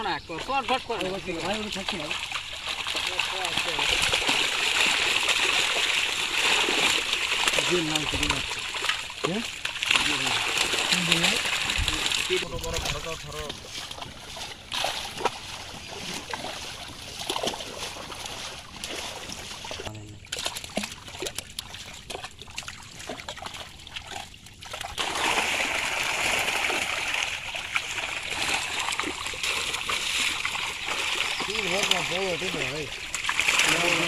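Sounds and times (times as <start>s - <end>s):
fish thrashing in water: 0.0s - 34.0s
sharp slaps on water: 1.0s - 12.3s, 18.8s - 25.6s.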